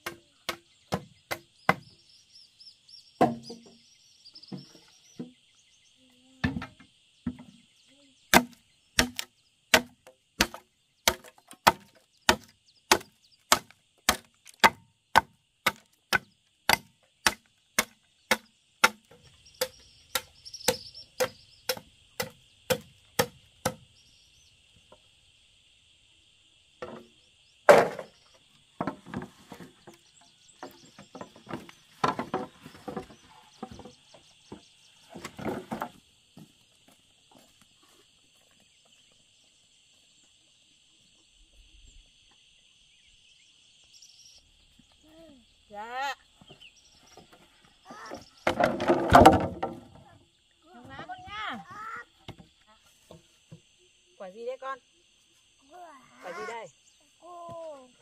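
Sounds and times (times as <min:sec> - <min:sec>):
insects buzzing: 0:00.0 - 0:58.0
machete chopping bamboo: 0:03.2 - 0:03.5, 0:08.3 - 0:23.8
bamboo poles clattering: 0:03.2 - 0:03.8, 0:08.3 - 0:23.8, 0:27.7 - 0:28.2, 0:28.8 - 0:37.6, 0:47.1 - 0:50.1.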